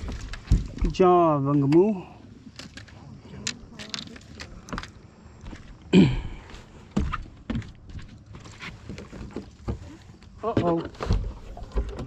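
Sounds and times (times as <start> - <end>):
knocks and thumps on a boat: 0.0 - 1.1, 6.9 - 12.0.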